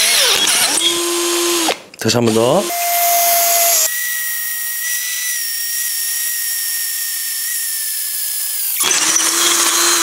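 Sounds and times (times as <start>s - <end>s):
high-pitched drill whine: 2.6s - 10.0s.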